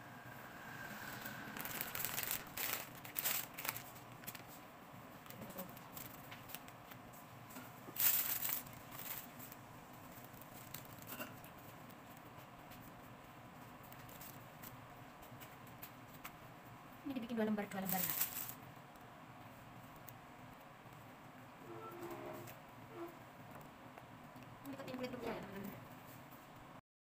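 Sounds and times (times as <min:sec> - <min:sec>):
paper wrappers rustling and crinkling: 0:01.5 - 0:16.3, 0:17.6 - 0:18.6.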